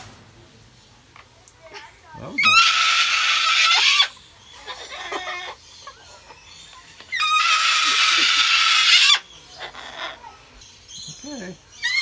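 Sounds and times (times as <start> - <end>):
cockatoo screaming: 2.4 - 5.6, 7.1 - 10.2
soft cockatoo squawks: 2.4 - 5.6.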